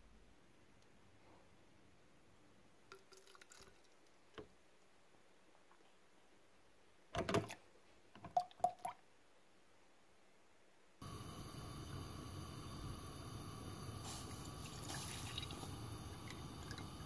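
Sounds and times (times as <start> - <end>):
milk glugging: 2.9 - 3.9, 14.2 - 17.0
milk splashing: 14.1 - 16.9.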